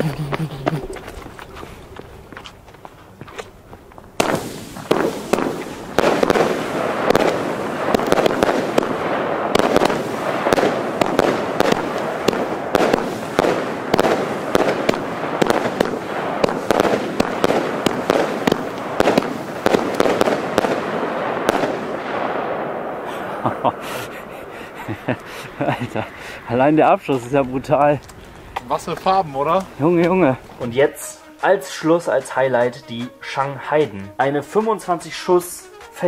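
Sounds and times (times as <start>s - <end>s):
firework launch shots and bursts: 4.2s - 24.3s.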